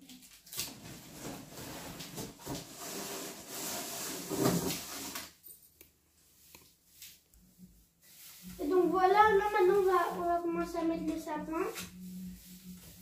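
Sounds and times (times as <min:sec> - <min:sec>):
rustling and scraping in cardboard box: 0:00.8 - 0:05.2.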